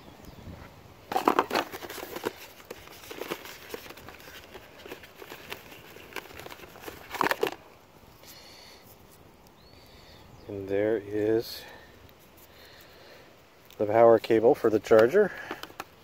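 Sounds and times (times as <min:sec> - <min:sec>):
cardboard rustling and crinkling: 0:01.1 - 0:07.7.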